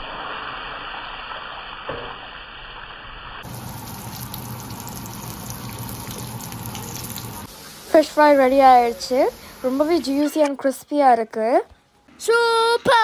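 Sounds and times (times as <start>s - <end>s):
fish sizzling in oil: 0.0s - 10.4s.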